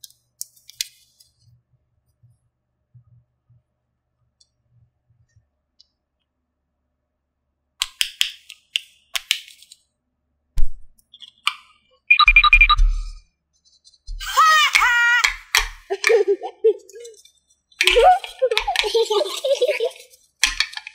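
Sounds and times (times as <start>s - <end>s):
plastic toy pieces clicking: 7.8s - 9.8s, 14.7s - 20.9s
electronic toy beeps: 12.1s - 13.2s.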